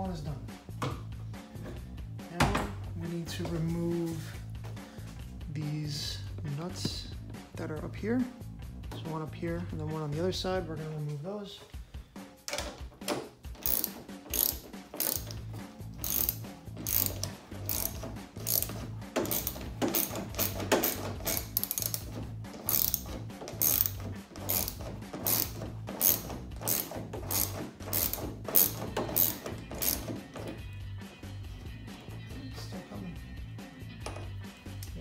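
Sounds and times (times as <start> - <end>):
hand ratchet clicking: 12.5 - 30.7.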